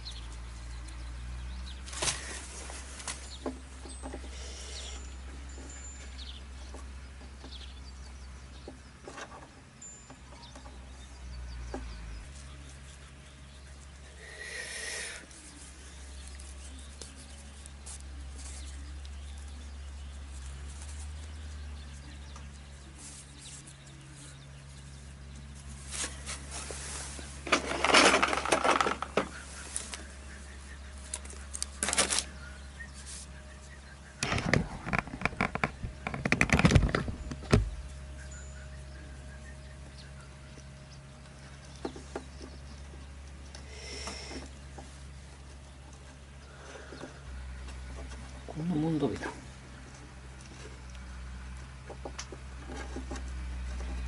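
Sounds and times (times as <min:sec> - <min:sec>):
hands rustling twine on tyre: 0:00.0 - 0:54.0
steady low rumble: 0:29.0 - 0:48.6.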